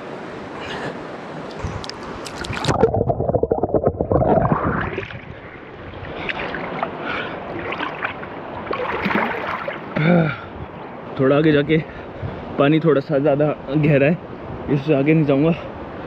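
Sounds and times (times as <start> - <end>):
river water splashing and sloshing: 0.0 - 11.2.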